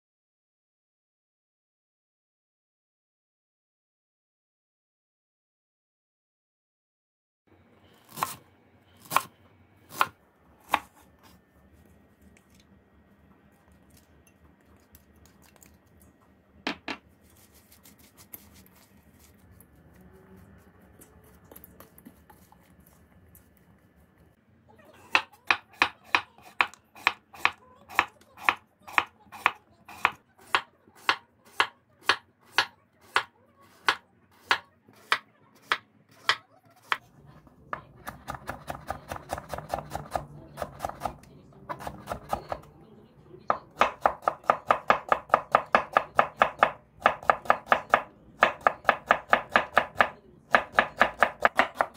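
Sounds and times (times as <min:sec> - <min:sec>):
knife chopping on wooden board: 0:09.9 - 0:11.0, 0:25.1 - 0:37.0, 0:37.8 - 0:42.6, 0:43.5 - 0:51.9
wooden spoon stirring in steel bowl: 0:17.0 - 0:24.3.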